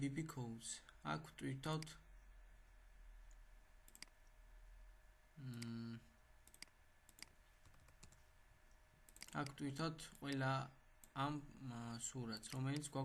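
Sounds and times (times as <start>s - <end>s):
faint mouse clicks: 3.2s - 4.4s, 6.4s - 10.4s
person humming: 5.4s - 6.1s.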